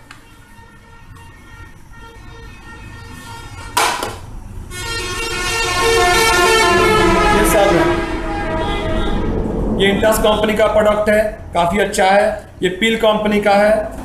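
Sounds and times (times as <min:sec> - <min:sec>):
vehicle horn sounding: 0:00.2 - 0:04.0, 0:04.7 - 0:09.4.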